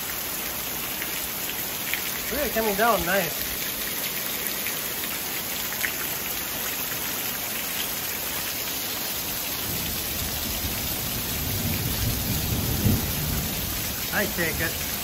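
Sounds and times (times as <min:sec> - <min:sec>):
heavy rain pouring: 0:00.0 - 0:15.0.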